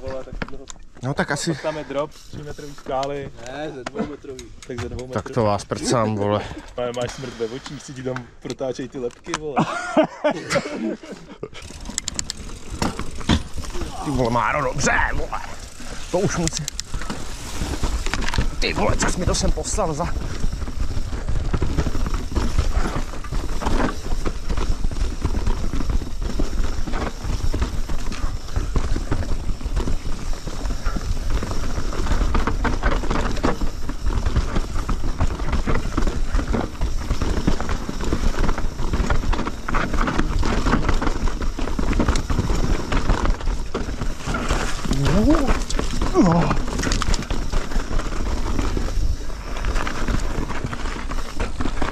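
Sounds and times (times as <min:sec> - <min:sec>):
bike rattling and knocking: 0:00.0 - 0:07.2, 0:07.9 - 0:51.9
low rumble of wind: 0:11.8 - 0:51.9.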